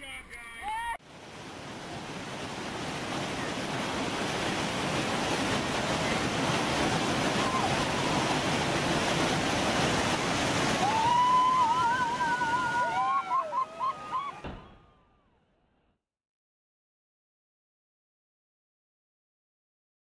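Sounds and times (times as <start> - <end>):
water rushing in rapids: 1.0 - 14.7.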